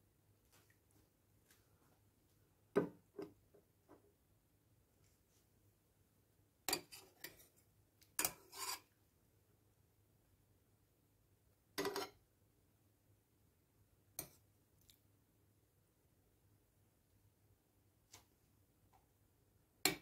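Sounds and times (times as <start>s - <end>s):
metal spoon scraping a pot: 6.7s - 7.6s, 8.2s - 8.9s, 11.8s - 12.2s.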